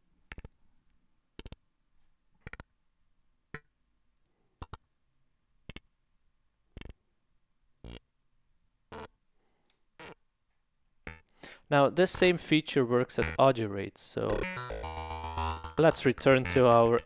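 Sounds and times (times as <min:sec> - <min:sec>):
clicky synthesizer blips: 0:08.9 - 0:09.1, 0:11.1 - 0:11.4, 0:13.2 - 0:13.6, 0:14.2 - 0:17.0.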